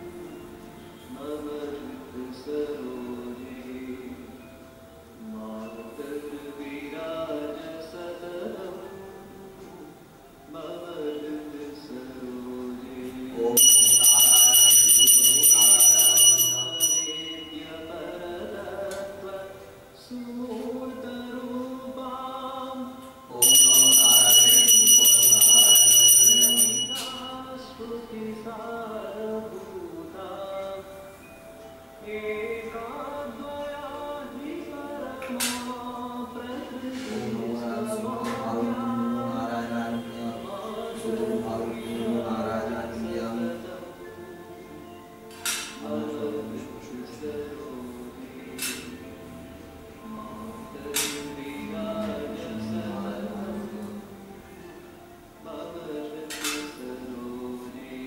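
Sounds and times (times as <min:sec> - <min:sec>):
devotional chanting: 0:00.0 - 0:58.0
person singing: 0:00.0 - 0:58.0
hand bell ringing rapidly: 0:13.6 - 0:17.6, 0:23.4 - 0:27.3.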